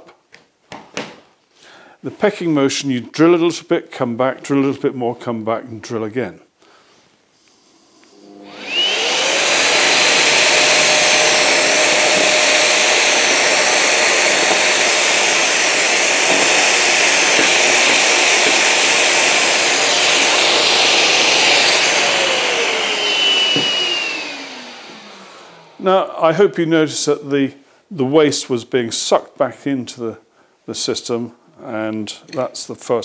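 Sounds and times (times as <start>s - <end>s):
dust extractor whining and running: 7.7s - 26.4s
cordless drill boring wood: 8.0s - 25.8s.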